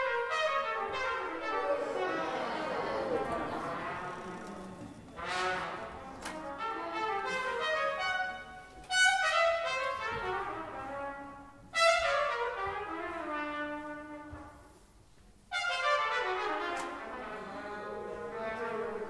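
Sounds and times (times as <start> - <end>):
big band brass chords: 0.0 - 14.5.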